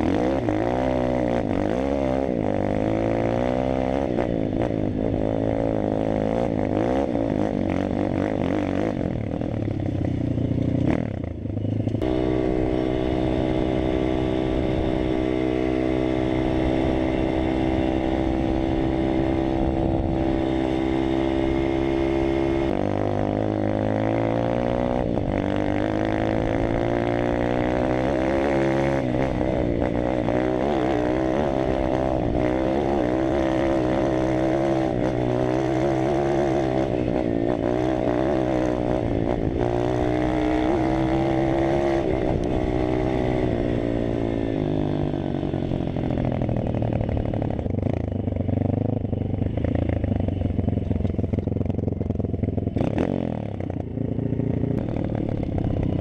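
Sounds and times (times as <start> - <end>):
pit bike engine revving: 12.0 - 48.8.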